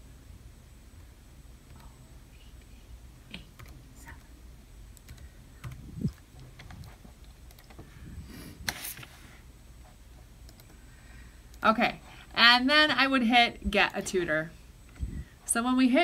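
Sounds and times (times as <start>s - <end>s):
laptop keys clicking: 5.0s - 7.8s.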